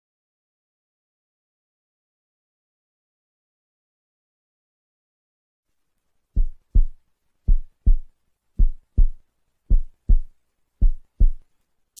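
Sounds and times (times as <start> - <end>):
heartbeat double thumps: 6.4 - 11.4.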